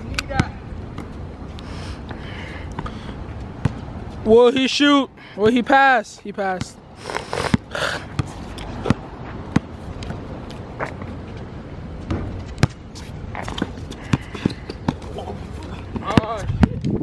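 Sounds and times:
basketball bouncing on hard court: 12.1s - 12.8s, 15.9s - 16.8s.

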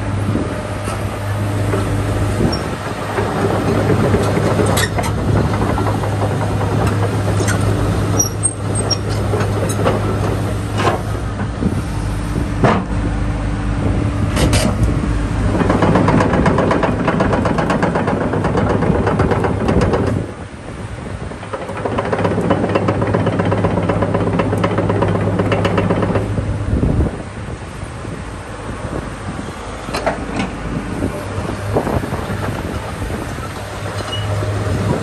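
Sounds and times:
excavator diesel engine running: 0.0s - 35.0s
fast rattling clatter: 15.5s - 20.2s, 21.4s - 26.3s.

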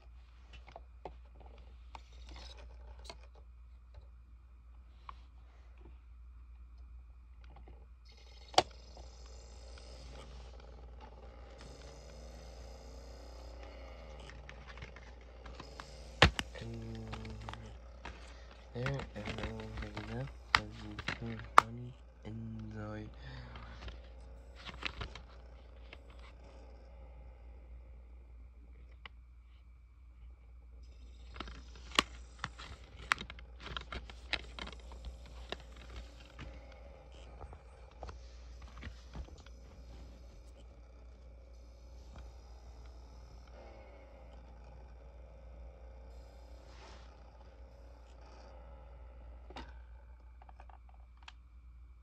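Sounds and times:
disc drive whirring: 6.8s - 29.8s, 30.7s - 44.4s.

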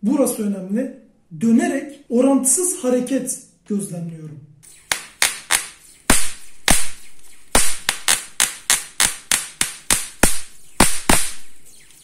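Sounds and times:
high-voltage sparks cracking: 4.7s - 12.0s.

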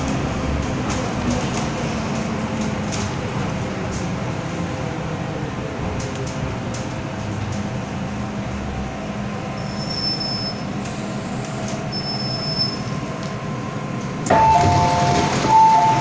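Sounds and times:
train doors opening with rush of air: 0.0s - 8.4s, 9.2s - 16.0s
train low steady rumble: 0.0s - 16.0s
two-tone door chime: 14.3s - 16.0s.

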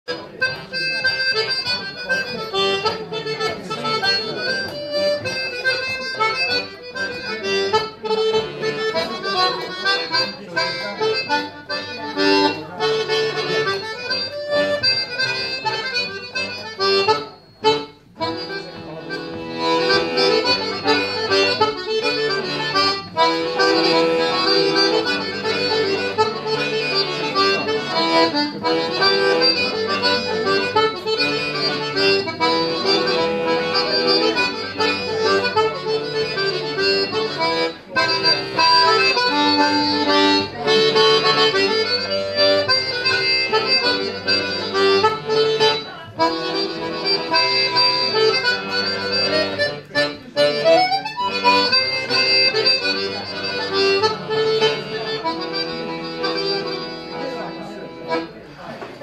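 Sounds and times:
button accordion playing a tune: 0.1s - 59.0s.

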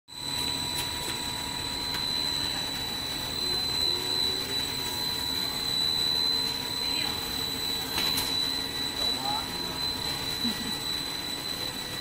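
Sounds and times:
machine noise with high whine: 0.1s - 12.0s.

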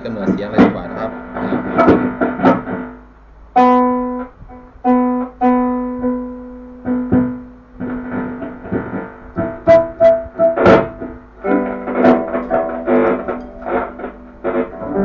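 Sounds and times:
amplified guitar string plucks: 3.6s - 15.0s.

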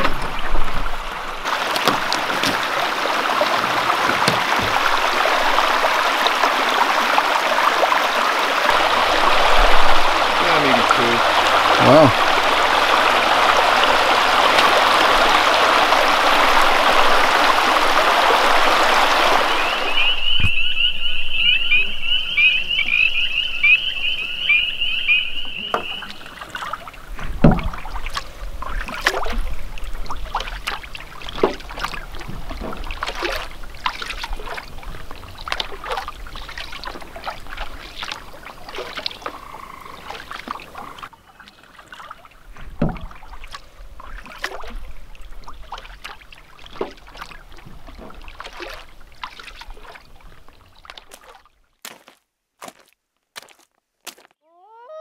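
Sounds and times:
paddle strokes and splashes: 0.0s - 21.4s, 24.0s - 54.2s
heavy thump: 27.2s - 27.8s.

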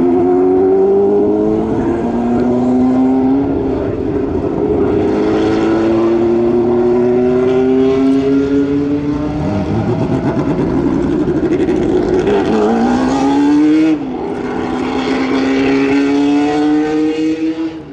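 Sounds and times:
racing car engine revving: 0.0s - 17.9s.

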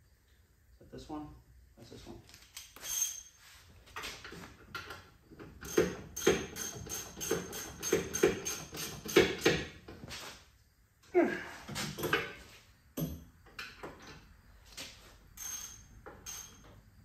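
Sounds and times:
ratchet wrench clicking: 5.6s - 9.4s, 15.4s - 16.6s.

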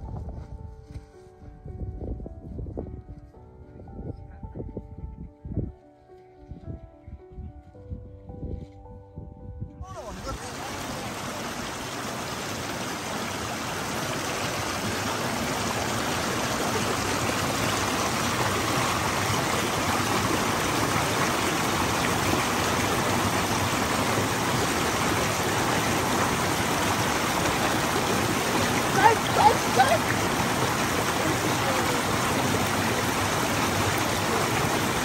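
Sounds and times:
mountain stream rushing: 10.0s - 35.0s.

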